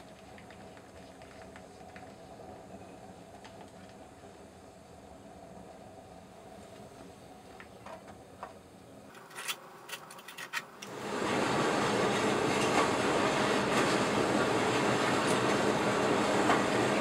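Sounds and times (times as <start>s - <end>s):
gas burner rushing: 9.1s - 17.0s.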